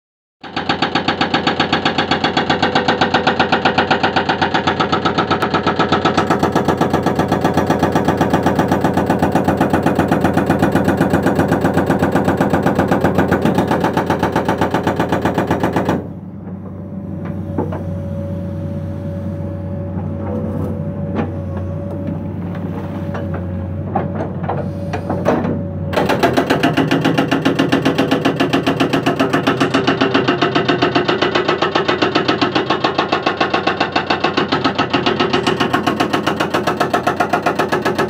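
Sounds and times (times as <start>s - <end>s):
hydraulic breaker hammering rock: 0.4s - 16.6s, 23.9s - 38.0s
excavator engine hum: 0.4s - 38.0s.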